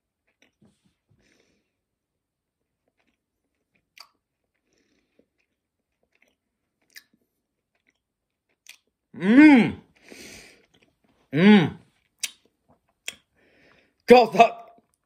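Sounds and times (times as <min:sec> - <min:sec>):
person chewing: 0:00.0 - 0:01.7, 0:02.5 - 0:14.0
man humming mmm: 0:09.2 - 0:09.9, 0:11.3 - 0:11.8
mouth clicks: 0:12.2 - 0:13.3.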